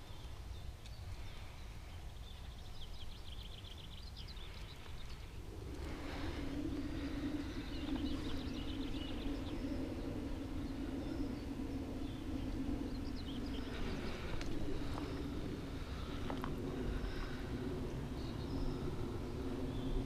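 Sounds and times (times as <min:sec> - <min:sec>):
birds chirping: 0:00.0 - 0:20.0
low drone with rumble: 0:00.0 - 0:20.0.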